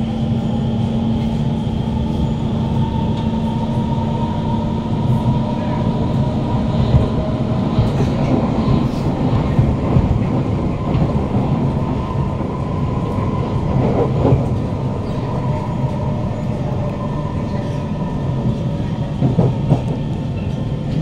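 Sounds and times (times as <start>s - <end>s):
train wheels rumbling on rails: 0.0s - 21.0s.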